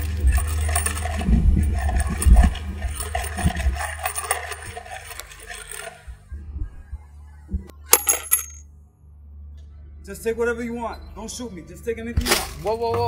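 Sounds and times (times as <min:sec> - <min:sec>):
coin clinking into a cup: 0:00.0 - 0:06.0, 0:07.9 - 0:08.6.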